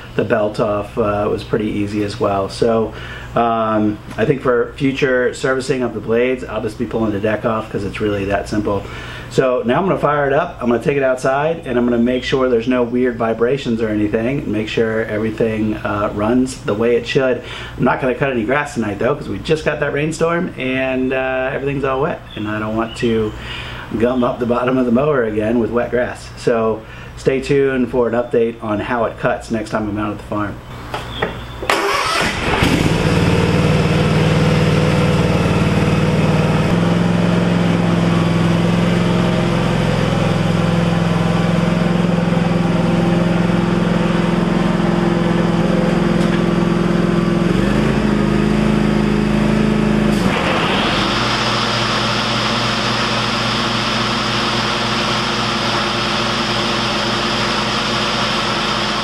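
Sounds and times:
mower engine running: 31.6s - 59.0s.

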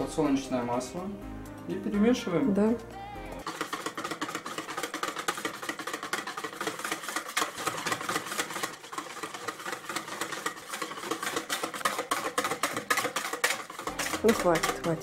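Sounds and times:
whisk tapping against bowl: 3.4s - 15.0s.

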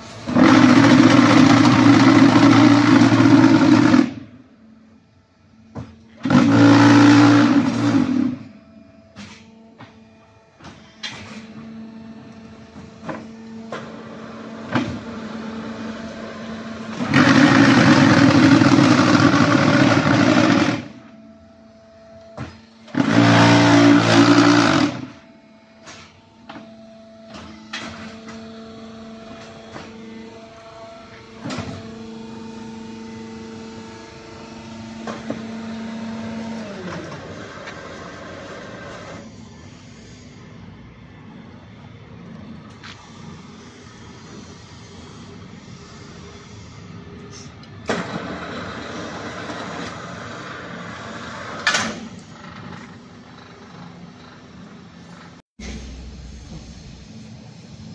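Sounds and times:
hydraulic power unit hum: 0.0s - 57.9s
loud mould vibration bursts: 0.3s - 4.3s, 6.2s - 8.4s.

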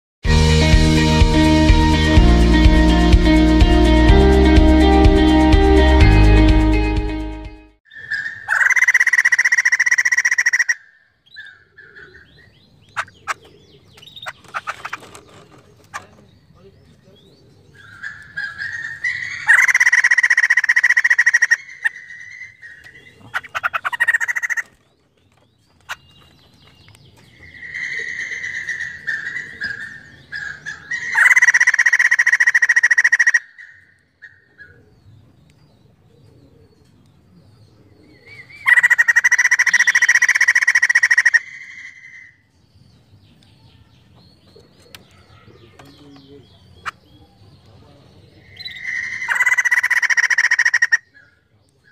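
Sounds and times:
bird rapid chattering: 8.0s - 10.8s, 11.4s - 22.0s, 22.7s - 24.8s, 27.4s - 33.4s, 38.6s - 41.6s, 44.6s - 51.3s.

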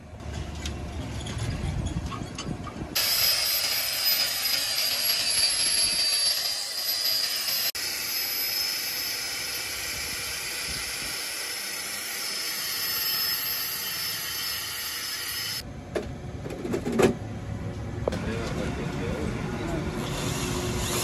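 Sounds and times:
angle grinder wire brush on steel: 3.0s - 15.6s.

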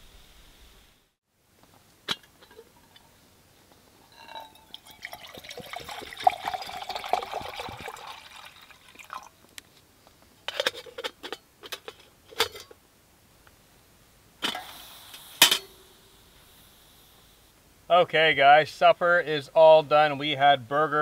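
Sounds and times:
metal lid clink: 2.1s - 3.2s, 10.5s - 12.8s, 15.4s - 15.8s
water pouring into metal pot: 4.0s - 9.3s.

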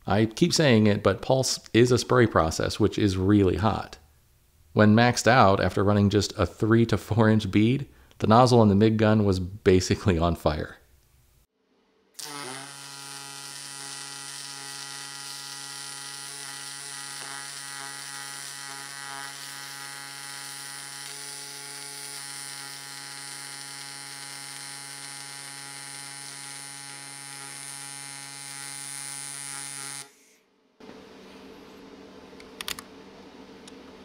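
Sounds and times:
welding arc buzzing: 12.2s - 30.4s.

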